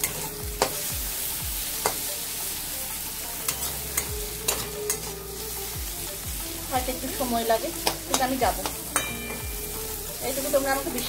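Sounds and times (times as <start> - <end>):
spatula scraping metal pan: 0.0 - 0.9, 3.4 - 5.2
onions sizzling in oil: 0.0 - 11.0.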